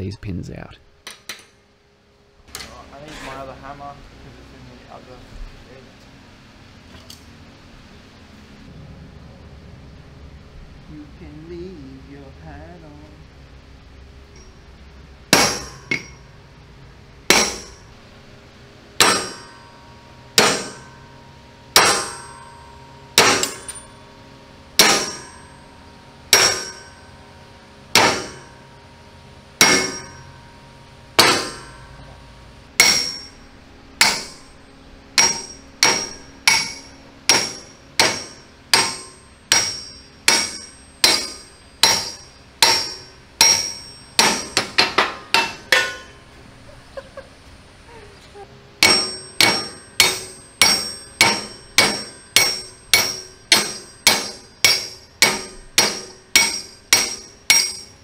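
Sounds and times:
hammer striking steel: 15.3s - 16.3s, 17.2s - 17.9s, 19.0s - 24.1s, 24.7s - 27.3s, 27.9s - 28.8s, 29.6s - 46.3s, 48.8s - 58.0s.

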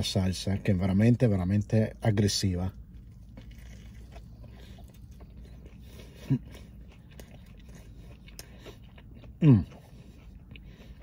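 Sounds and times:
person chewing food: 2.7s - 11.0s.

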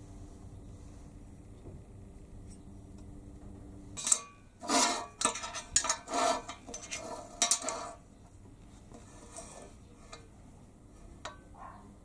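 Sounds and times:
steel bars clinking on worktable: 4.0s - 8.0s.

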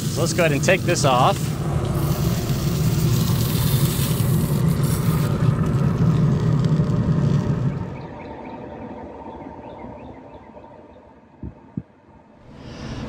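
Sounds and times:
hot oil sizzling in pan: 0.0s - 7.8s
rumble of fan-driven fire: 0.0s - 11.8s, 12.4s - 13.0s.

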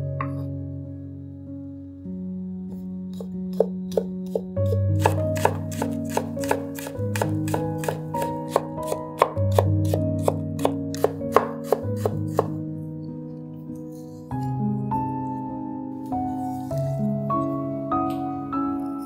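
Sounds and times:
background music with held chords: 0.0s - 19.0s
knife chopping on wooden board: 3.2s - 12.6s.

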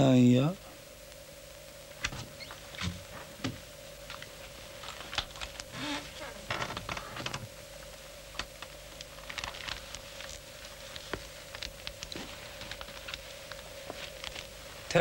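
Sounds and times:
faint hum: 0.0s - 15.0s
soft footsteps: 9.8s - 15.0s.

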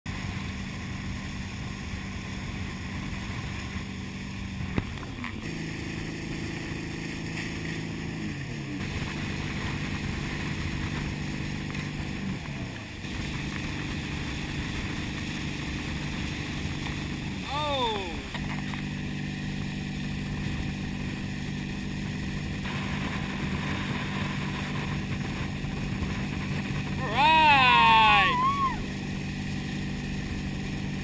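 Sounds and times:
boat engine running: 8.8s - 28.2s, 28.8s - 31.0s.

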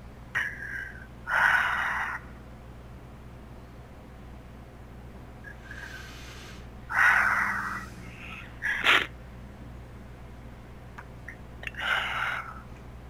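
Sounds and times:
person breathing out heavily: 5.5s - 6.7s
person sniffing: 5.5s - 6.7s.

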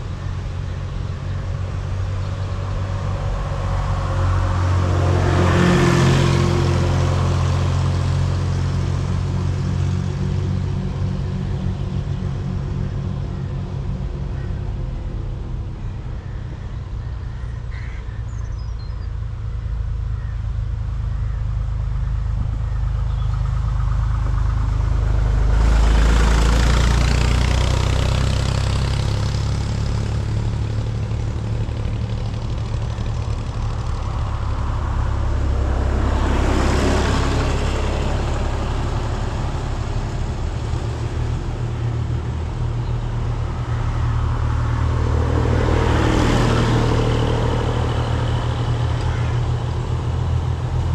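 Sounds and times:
tractor approaching: 0.0s - 50.9s
tractor engines rumbling: 0.0s - 50.9s.

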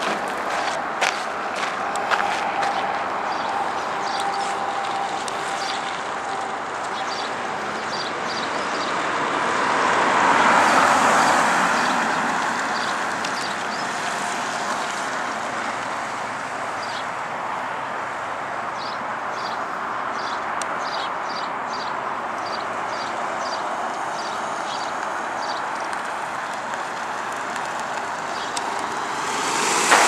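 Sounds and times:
vehicle passing on road: 0.0s - 30.0s.

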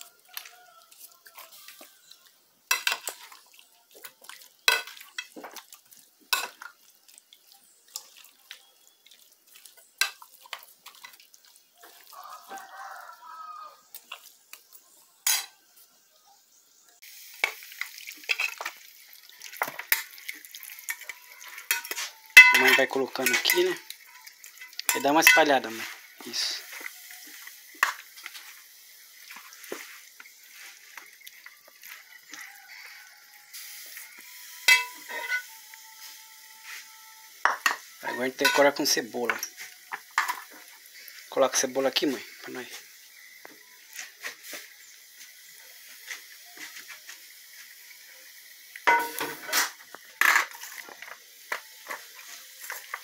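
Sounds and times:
metal spoon clattering on pan: 4.7s - 5.4s, 20.9s - 23.8s, 34.7s - 35.4s, 48.8s - 49.4s
spoon scraping metal tray: 21.6s - 23.8s.

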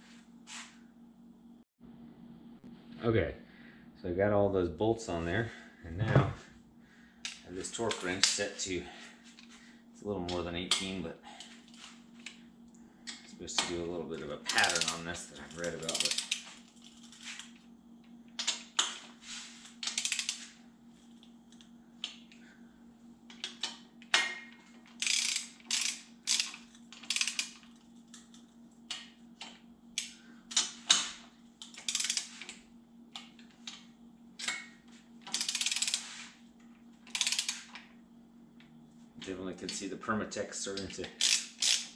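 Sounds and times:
faint steady hum: 0.0s - 41.9s
ratchet wrench clicking: 14.5s - 17.1s, 19.8s - 20.5s, 24.9s - 28.5s, 31.6s - 32.5s, 35.2s - 36.1s, 37.1s - 37.8s, 40.8s - 41.9s.

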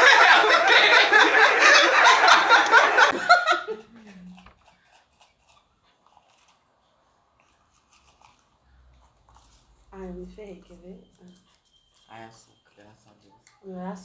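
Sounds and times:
man laughing heartily: 0.0s - 3.8s.

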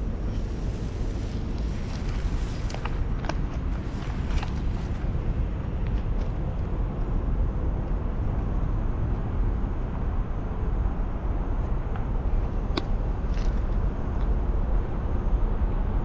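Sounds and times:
wind noise on microphone: 0.0s - 16.0s.

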